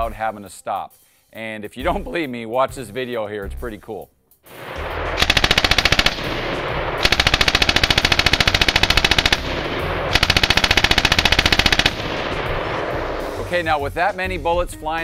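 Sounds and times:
machine gun firing bursts: 4.6s - 13.4s.

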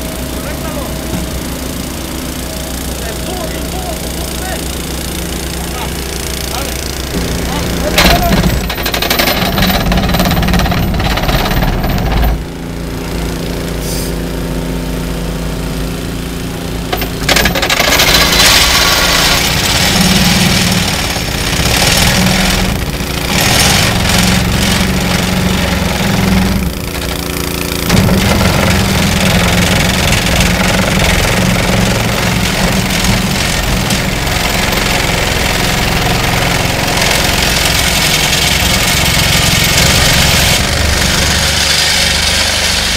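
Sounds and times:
excavator engine running: 0.0s - 42.9s
vibratory plate compactor: 0.0s - 42.9s.

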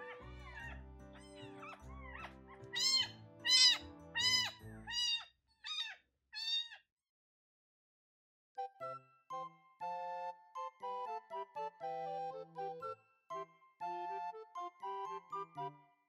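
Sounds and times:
soft background music: 0.0s - 5.2s, 8.6s - 16.0s
kitten mewing: 0.0s - 6.8s.

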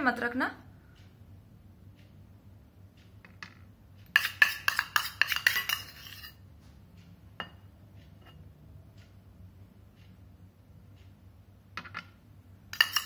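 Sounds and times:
metal spoon clinking on bowl: 4.1s - 6.4s, 12.7s - 13.0s.

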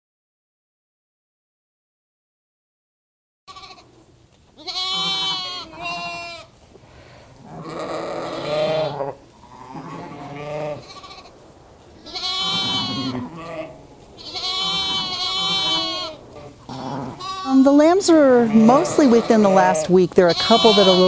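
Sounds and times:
sheep bleating: 3.5s - 4.0s, 4.6s - 6.6s, 7.4s - 11.4s, 12.0s - 21.0s.

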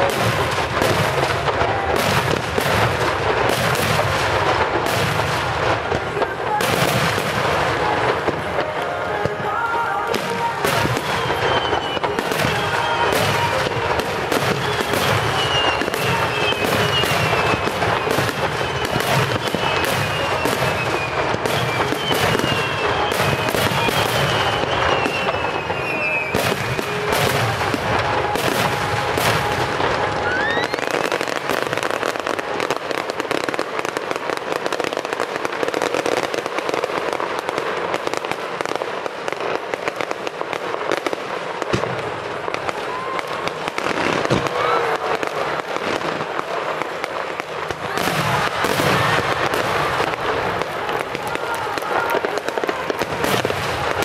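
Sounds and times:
fireworks cracking and popping: 0.0s - 54.0s
rising firework whistle: 0.0s - 54.0s
falling firework whistles: 9.2s - 37.2s.

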